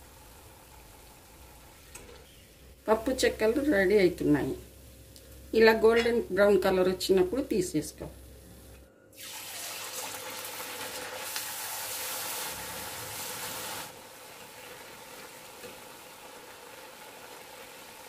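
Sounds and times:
food sizzling in hot oil: 0:09.2 - 0:18.0.

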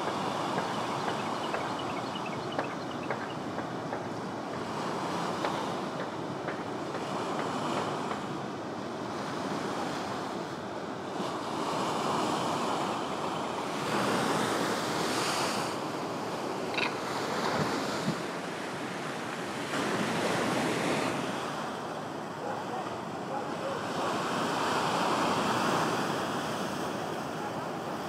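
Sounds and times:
ocean waves breaking: 0:00.0 - 0:28.0
wind on microphone: 0:16.7 - 0:18.4.

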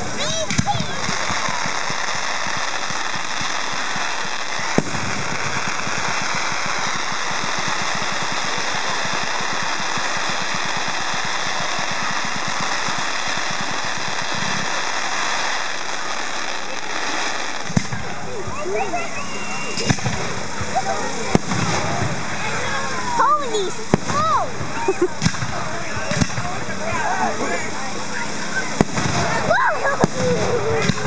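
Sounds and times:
firework bang: 0:00.0 - 0:19.0, 0:19.6 - 0:31.0
fireworks crackling: 0:00.0 - 0:31.0.

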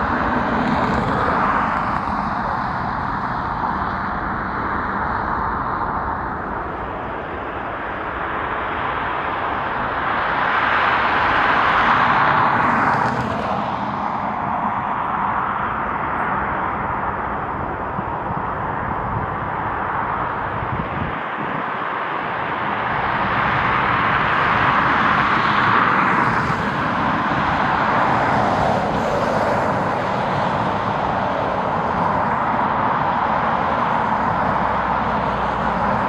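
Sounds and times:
passing vehicles engine noise: 0:00.0 - 0:36.0.

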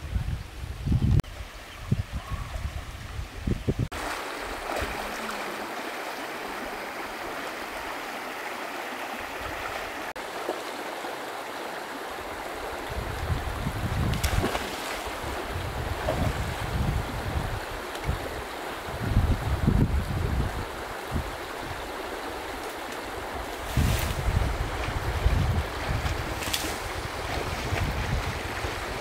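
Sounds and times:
wind buffeting microphone: 0:00.0 - 0:05.0, 0:12.4 - 0:29.0
stream water rushing: 0:02.6 - 0:29.0.

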